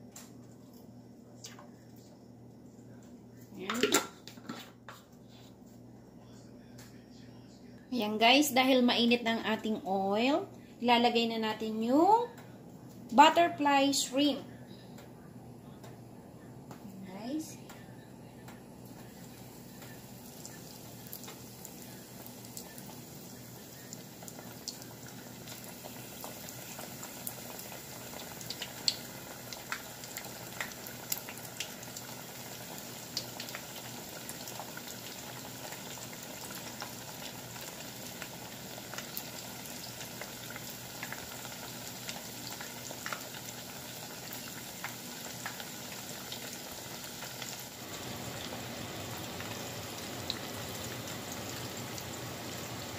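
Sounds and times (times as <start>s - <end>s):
oil crackles and pops: 18.4s - 52.9s
shrimp deep-frying in oil: 18.8s - 52.9s.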